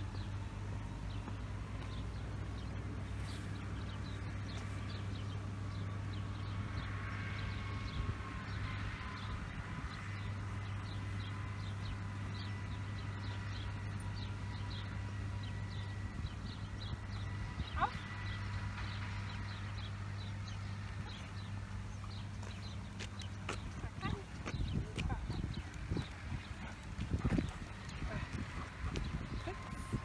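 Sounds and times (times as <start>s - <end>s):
small birds chirping: 9.9s - 30.0s.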